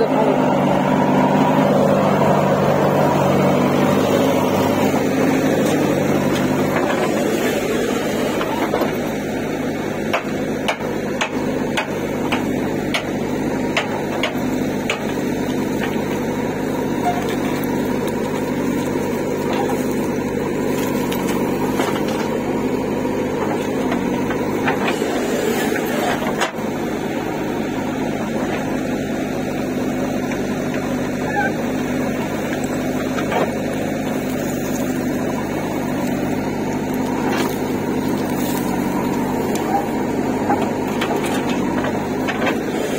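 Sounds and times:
diesel engine running under load: 0.0 - 42.9
falling soil: 13.4 - 27.0, 28.0 - 42.9.

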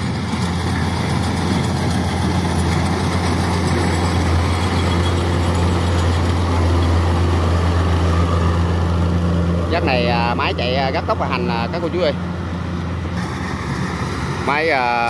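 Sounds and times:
machine clatter: 0.0 - 6.4
diesel engine drone: 0.0 - 15.0.

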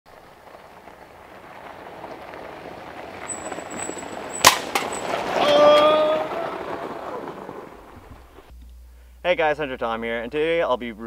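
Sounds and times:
atv driving on gravel: 0.1 - 8.5
sharp crack: 0.6 - 8.5.

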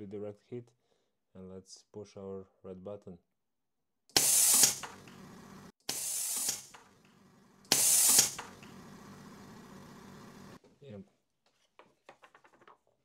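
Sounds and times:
compressed air blasts: 4.1 - 7.0, 7.6 - 10.6.

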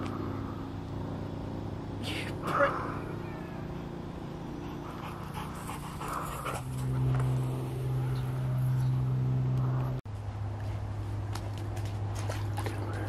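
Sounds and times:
steady low hum: 0.0 - 13.0
dog panting: 4.6 - 7.1.

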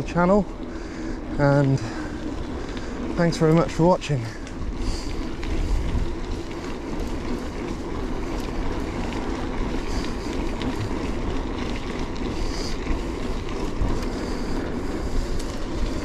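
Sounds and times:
bike tyres rolling on gravel: 0.0 - 16.0
wind on microphone: 4.6 - 7.0.

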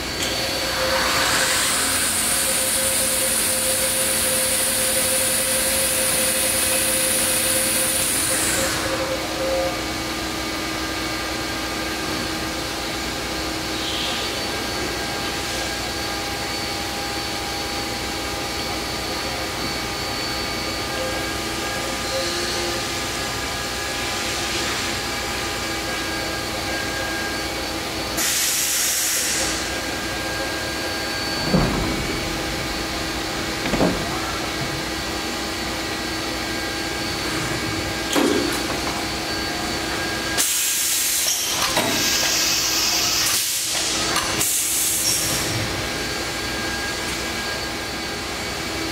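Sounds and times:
machine hum with whining tones: 0.0 - 48.9
sliding doors shutting: 28.2 - 35.1.

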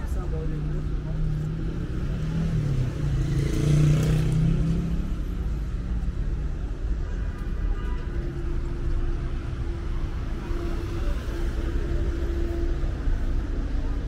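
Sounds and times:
steady road noise: 0.0 - 14.0
vehicle engine passing: 0.7 - 6.1.

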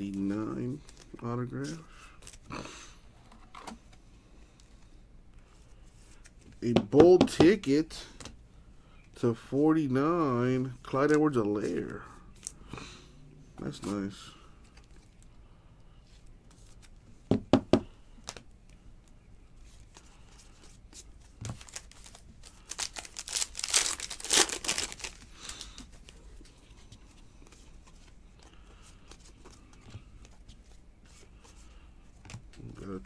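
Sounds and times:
foil wrapper crinkling: 21.5 - 25.8.

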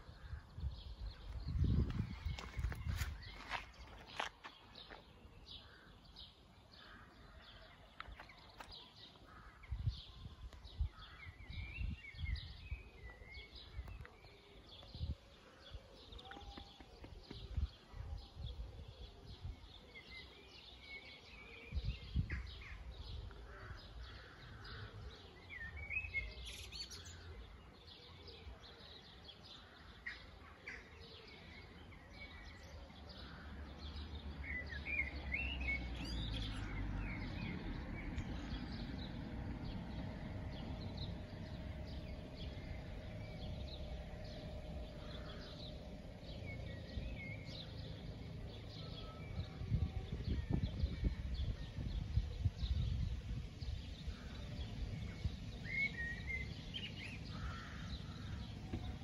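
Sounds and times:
birds chirping and singing: 0.0 - 59.0
low rumble: 36.9 - 55.4.

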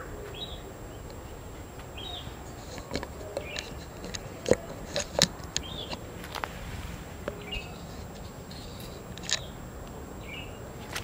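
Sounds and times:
bird chirps: 0.0 - 6.2, 7.1 - 9.6, 10.2 - 10.7
footsteps on leafy dirt path: 5.4 - 9.6.

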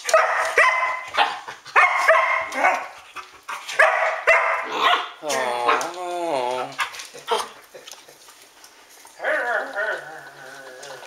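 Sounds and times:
dog barking: 0.0 - 2.9, 3.8 - 5.8.

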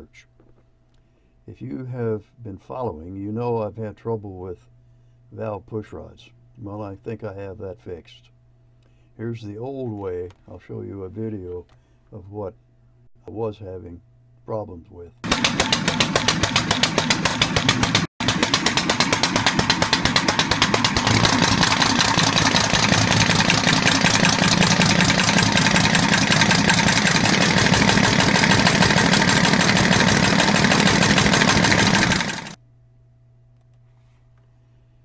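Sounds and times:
air engine exhaust puffs: 15.3 - 32.6.

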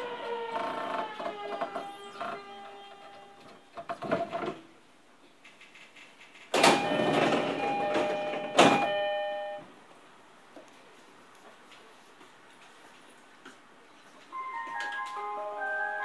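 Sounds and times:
sliding doors opening: 0.0 - 4.8, 5.6 - 9.6
two-tone electronic door chime: 6.6 - 9.7.

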